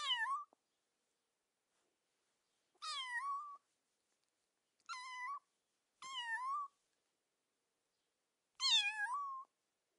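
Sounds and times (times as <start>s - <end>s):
kitten meowing: 0.0s - 0.6s, 2.8s - 3.6s, 4.8s - 5.4s, 6.0s - 6.7s, 8.6s - 9.5s.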